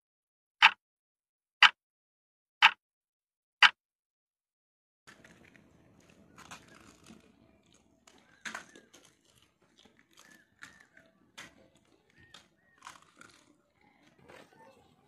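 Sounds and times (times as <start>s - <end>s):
crisp shells crunching: 5.1s - 14.2s.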